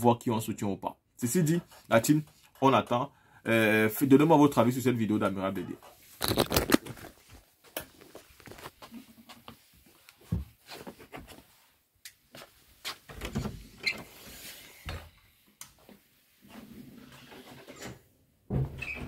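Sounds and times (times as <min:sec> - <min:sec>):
phone handling noise: 0:06.2 - 0:07.0.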